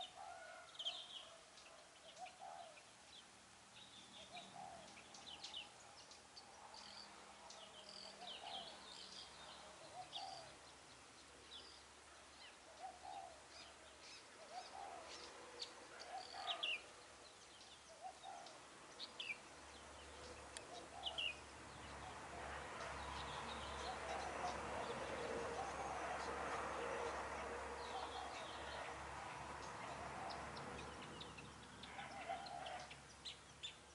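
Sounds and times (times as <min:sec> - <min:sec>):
small birds chirping: 0:00.0 - 0:33.9
dove cooing: 0:02.2 - 0:02.8, 0:04.2 - 0:04.9, 0:09.7 - 0:10.6, 0:12.7 - 0:13.4, 0:14.4 - 0:16.8, 0:23.7 - 0:29.0, 0:29.8 - 0:31.1, 0:31.9 - 0:32.9.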